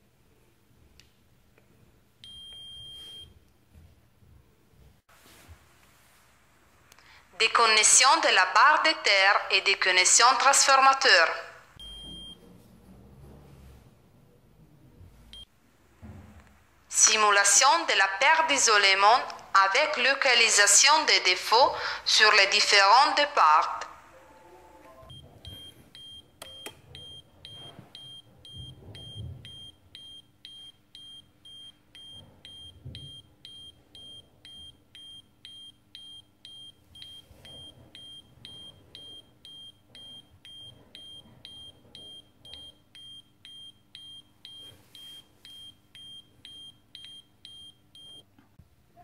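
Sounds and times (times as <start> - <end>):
alarm buzzer beeping: 11.8 - 12.4, 25.0 - 48.2.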